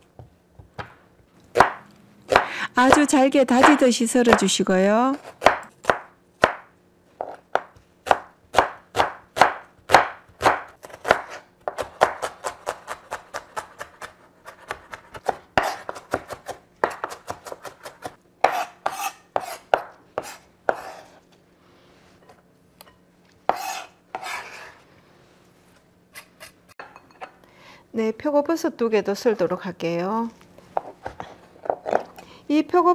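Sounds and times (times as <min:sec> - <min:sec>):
knife chopping onion on wooden board: 0:00.7 - 0:04.5, 0:05.2 - 0:21.2, 0:23.5 - 0:24.7.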